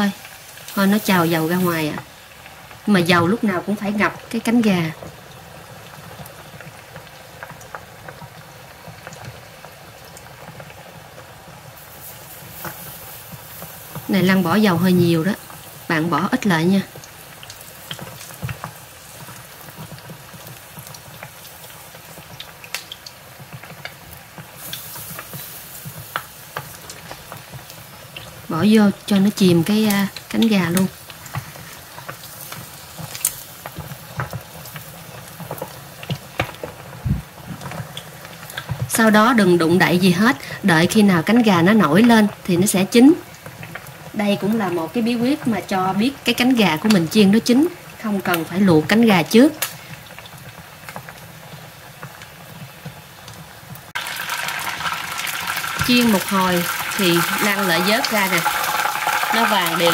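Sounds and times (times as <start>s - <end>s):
oil bubbling and sizzling: 0.0s - 59.9s
crackling pops: 12.3s - 59.9s.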